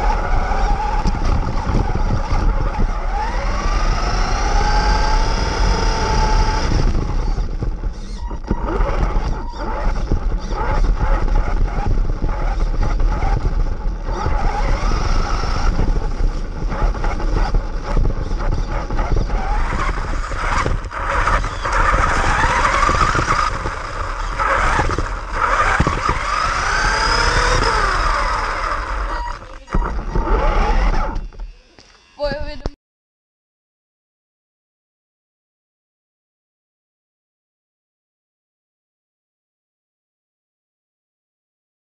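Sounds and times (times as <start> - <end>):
rc car motor whining: 0.0 - 32.8
tyres rumbling on ground: 10.6 - 31.4.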